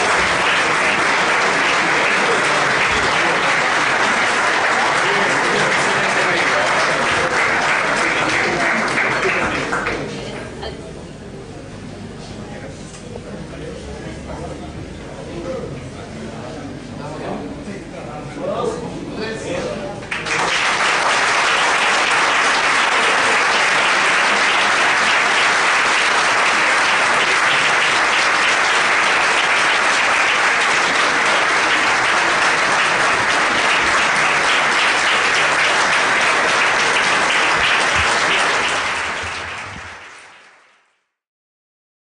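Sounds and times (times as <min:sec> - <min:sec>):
crowd applauding: 0:00.0 - 0:10.5, 0:20.0 - 0:41.1.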